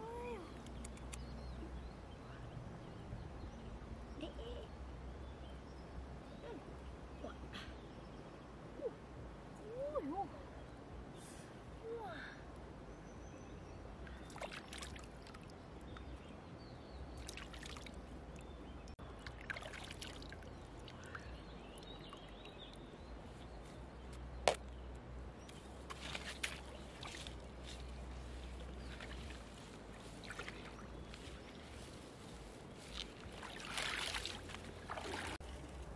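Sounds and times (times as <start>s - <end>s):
river water splashing: 14.2s - 16.2s, 17.1s - 23.0s, 25.5s - 35.9s
steady low rumble: 20.3s - 33.6s.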